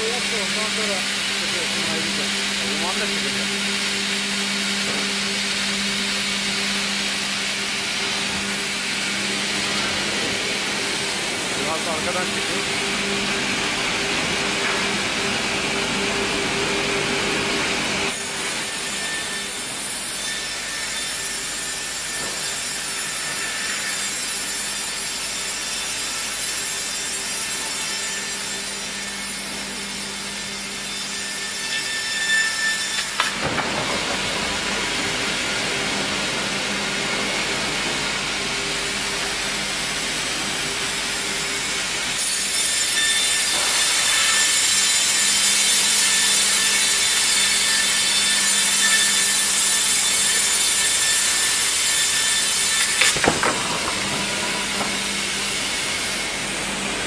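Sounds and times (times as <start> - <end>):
band saw cutting wood: 0.0 - 57.0.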